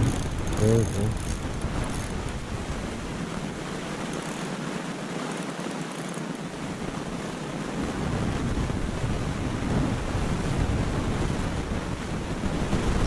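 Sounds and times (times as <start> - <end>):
wind buffeting microphone: 0.0 - 4.0.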